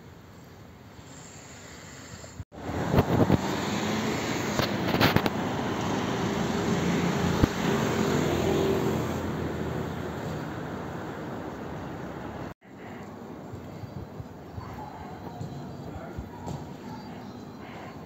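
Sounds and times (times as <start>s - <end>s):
motor vehicle running: 2.6s - 12.5s.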